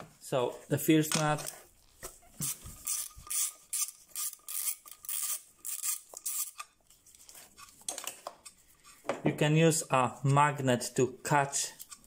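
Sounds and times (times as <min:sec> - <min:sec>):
ratchet wrench clicking: 0:02.8 - 0:06.6.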